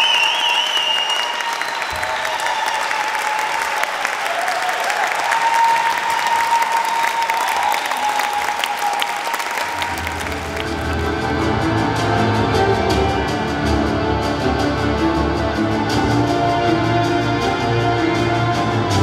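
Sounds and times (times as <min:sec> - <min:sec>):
crowd whooping: 0:00.0 - 0:11.6
audience applauding: 0:00.0 - 0:13.4.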